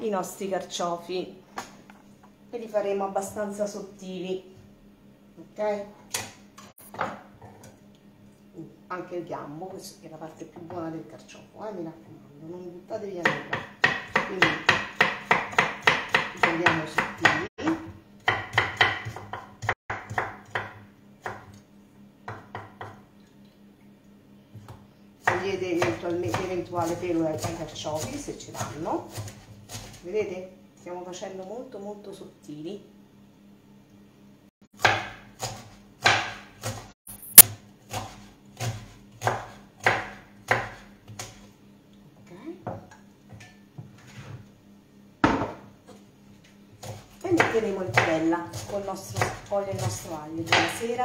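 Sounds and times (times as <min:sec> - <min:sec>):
knife knocking on cutting board: 0:45.2 - 0:45.7.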